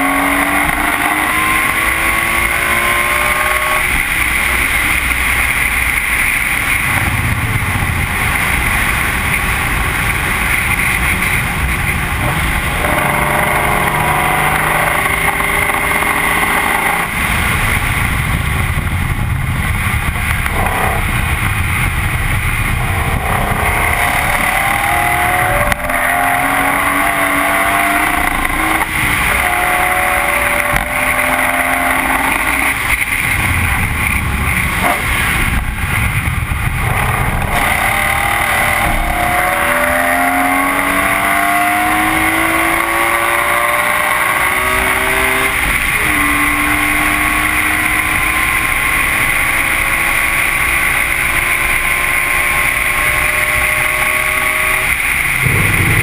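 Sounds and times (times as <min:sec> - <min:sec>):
wind noise: 0:00.0 - 0:39.7, 0:52.4 - 0:56.0
car engine revving through gears: 0:00.0 - 0:56.0.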